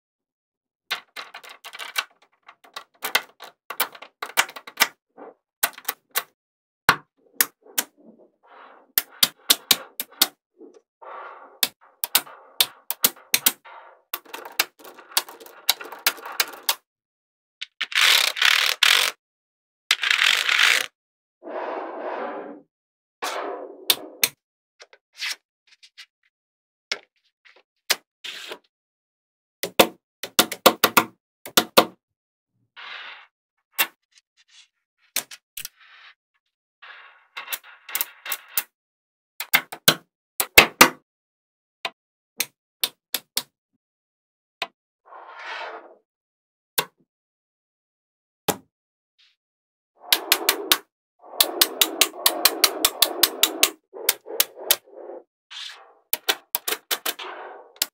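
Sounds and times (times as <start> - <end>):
magnet balls clicking: 50.1 - 54.8.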